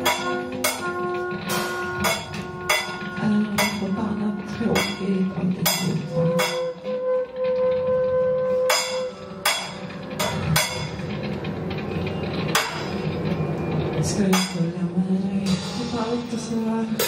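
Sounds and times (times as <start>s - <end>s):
sharp percussive hits: 0.0s - 4.0s, 4.7s - 6.9s, 8.7s - 13.4s
live band with horns and keyboards: 0.3s - 3.2s.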